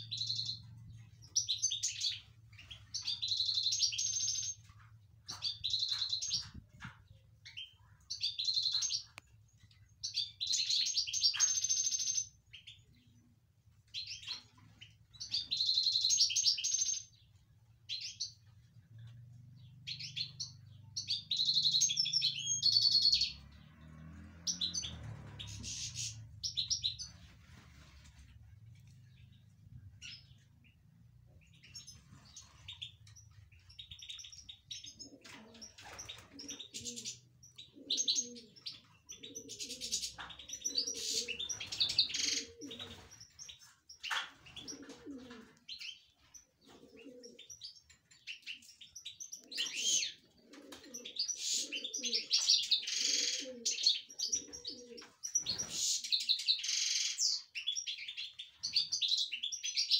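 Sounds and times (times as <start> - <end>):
goldfinch twittering song: 19.6 - 27.3.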